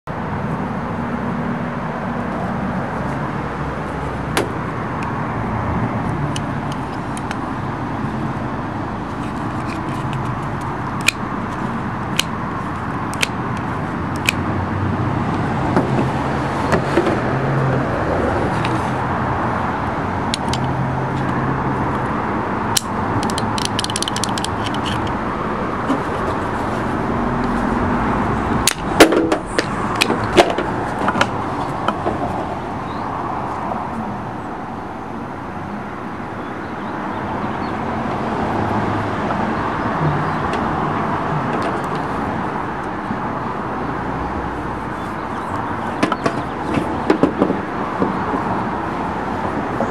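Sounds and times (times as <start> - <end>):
hood latch clicking: 22.7 - 25.2.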